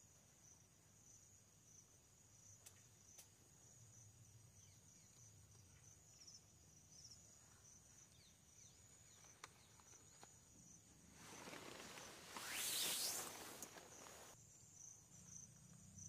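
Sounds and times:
crickets chirping: 0:00.0 - 0:16.0
high-pitched insect trill: 0:00.0 - 0:16.0
faint clicks: 0:02.6 - 0:03.4.

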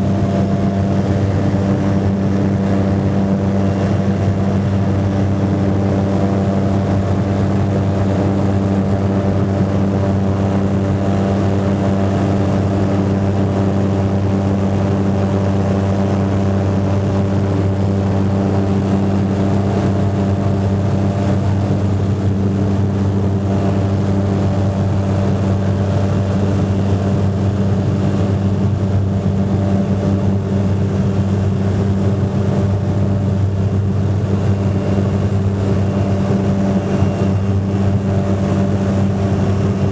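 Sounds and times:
propeller engine droning: 0:00.0 - 0:39.9.

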